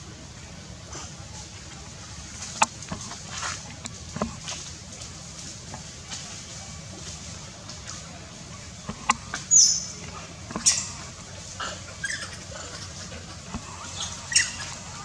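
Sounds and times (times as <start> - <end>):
macaques squealing: 10.6 - 13.0, 13.7 - 15.0.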